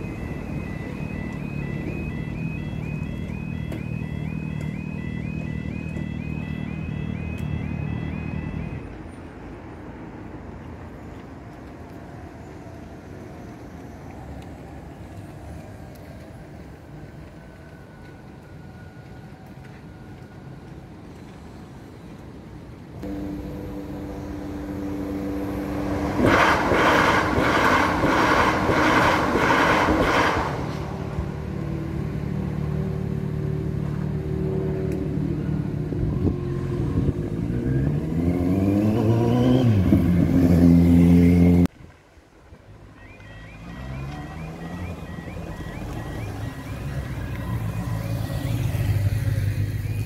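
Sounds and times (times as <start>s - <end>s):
train motor hum: 23.0s - 31.0s.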